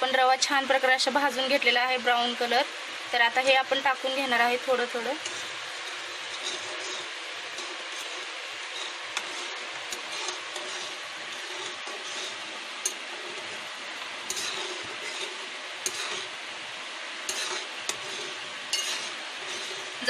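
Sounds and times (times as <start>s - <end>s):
boiling pan hissing: 0.0s - 20.0s.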